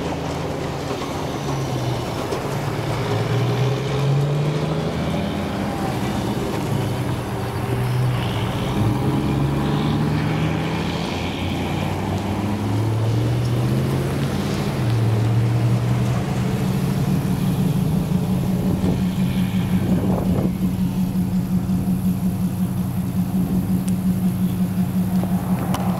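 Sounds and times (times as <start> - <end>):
engine drone: 0.0 - 25.9
fast regular pulsing: 12.6 - 25.9.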